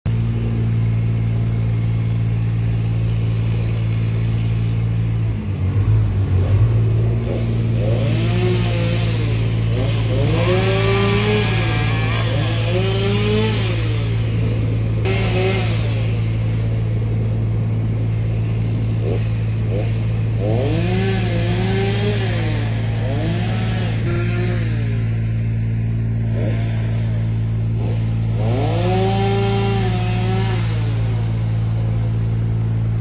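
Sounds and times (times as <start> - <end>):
chainsaw revving: 0.1 - 33.0
heavy engine humming: 0.1 - 33.0.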